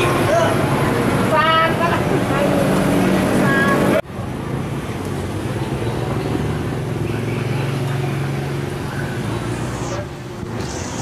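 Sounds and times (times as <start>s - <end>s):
street noise: 0.0s - 11.0s.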